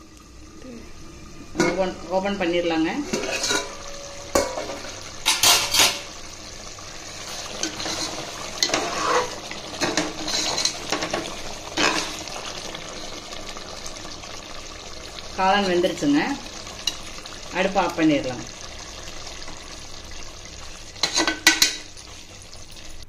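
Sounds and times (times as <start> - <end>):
spoon scraping cooking pot: 3.1 - 3.8, 7.4 - 12.2.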